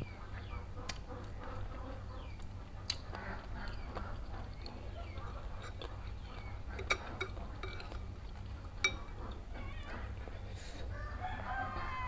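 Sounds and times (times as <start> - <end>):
cutlery clinking on ceramic bowls: 6.7 - 8.0, 8.8 - 9.2
cat meowing: 9.5 - 10.1.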